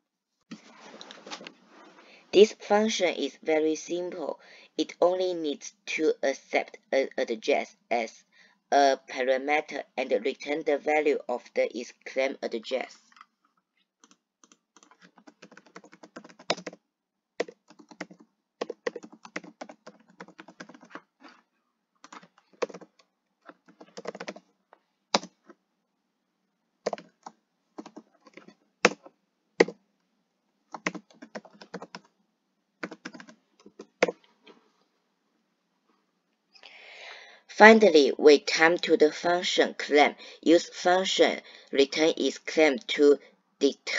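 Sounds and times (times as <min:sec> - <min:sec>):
computer keyboard typing: 0:14.0 - 0:16.8, 0:17.4 - 0:21.0, 0:22.0 - 0:24.5, 0:25.1 - 0:25.4, 0:26.8 - 0:29.8, 0:30.7 - 0:32.1, 0:32.8 - 0:34.2.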